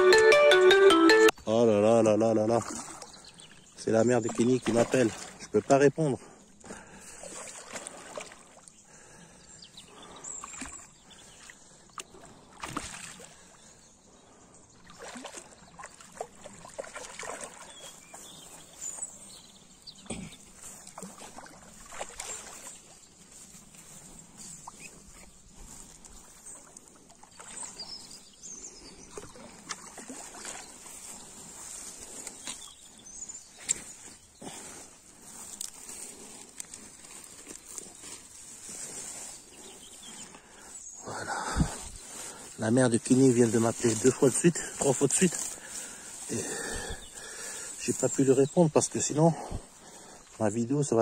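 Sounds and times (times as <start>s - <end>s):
water sloshing: 2.5s - 8.8s, 10.0s - 13.8s, 14.8s - 48.2s.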